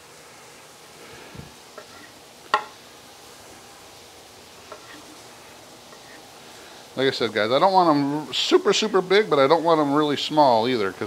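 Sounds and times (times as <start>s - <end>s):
faint steady hiss: 0.0s - 11.0s
knife knocking on wooden board: 2.5s - 2.8s.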